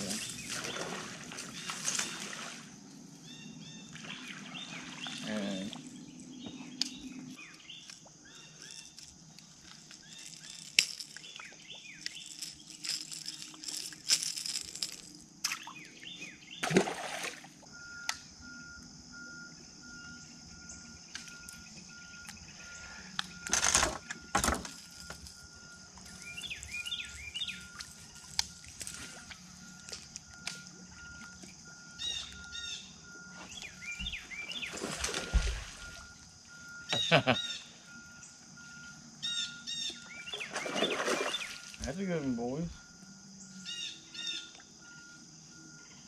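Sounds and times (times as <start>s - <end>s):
birds chirping faintly: 0.0s - 16.7s, 17.7s - 46.0s
repeating electronic beep: 24.9s - 40.6s.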